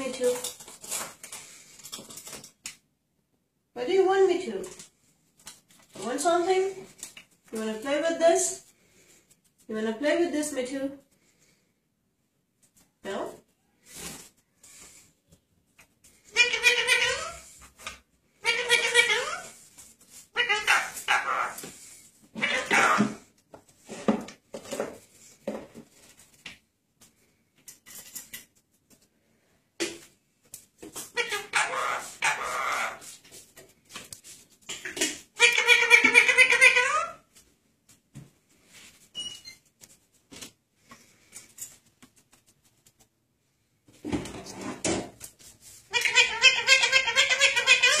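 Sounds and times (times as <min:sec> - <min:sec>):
parakeet chattering: 0:16.3 - 0:17.4, 0:18.4 - 0:19.5, 0:20.4 - 0:21.6, 0:22.4 - 0:23.1, 0:31.2 - 0:33.0, 0:34.8 - 0:37.2, 0:45.9 - 0:48.0.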